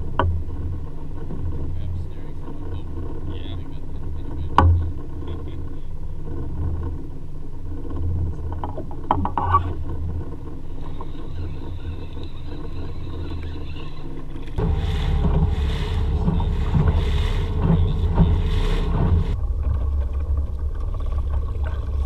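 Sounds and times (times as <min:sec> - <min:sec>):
outboard motor running: 0:00.0 - 0:22.0.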